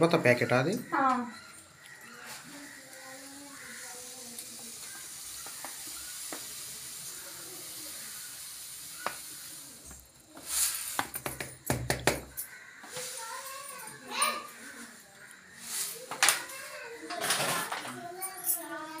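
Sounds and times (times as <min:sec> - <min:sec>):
tea granules pouring into jar: 0:02.3 - 0:11.1.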